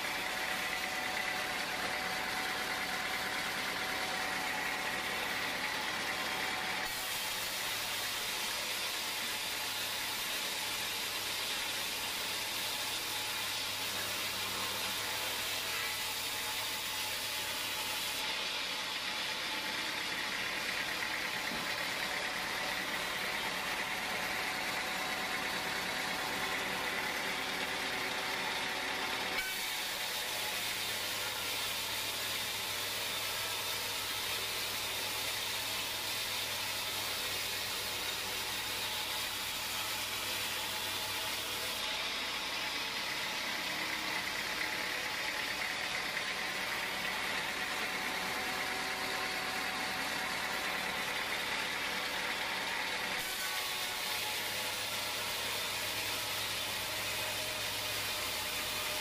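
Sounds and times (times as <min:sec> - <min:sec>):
band saw cutting log: 0:00.0 - 0:59.0.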